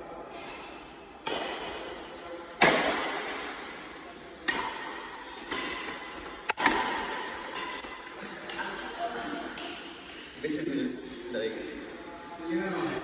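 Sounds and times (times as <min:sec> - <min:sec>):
rackets hitting shuttlecock: 0:01.2 - 0:10.0.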